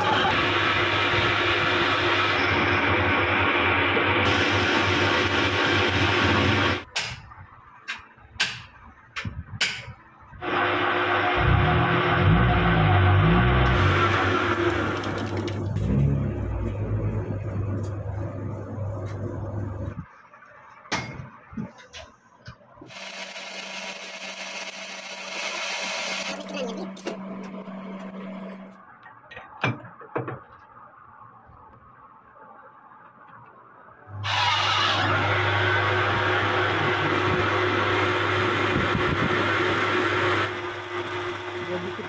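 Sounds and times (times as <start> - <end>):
drill cutting plastic hiss: 22.9 - 26.8
lathe motor humming: 22.9 - 28.8, 34.2 - 42.0
metal lathe humming: 22.9 - 28.8.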